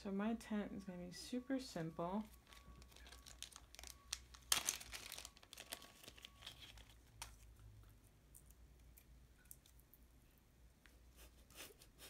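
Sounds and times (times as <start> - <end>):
plastic bag crinkling: 2.2 - 7.6.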